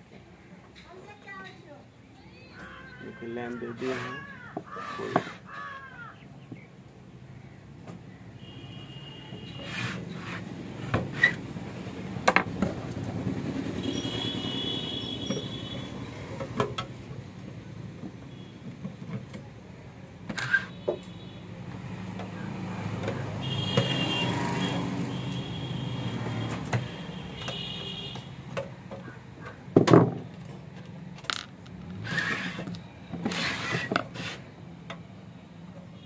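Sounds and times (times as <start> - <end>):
knocks and clunks of handling: 17.9 - 19.6, 26.5 - 34.2.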